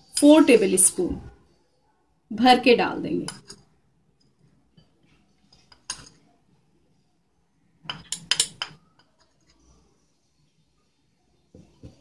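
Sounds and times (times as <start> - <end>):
spoon clinking on plate and bowl: 7.9 - 9.2.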